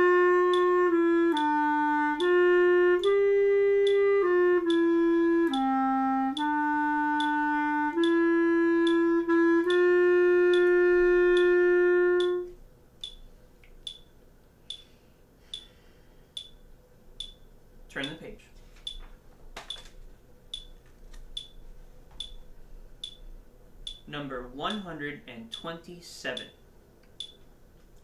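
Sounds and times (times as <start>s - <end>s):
clarinet slow melody: 0.0s - 12.6s
metronome clicking: 0.0s - 15.8s, 16.4s - 19.9s, 20.5s - 21.6s, 22.2s - 27.5s.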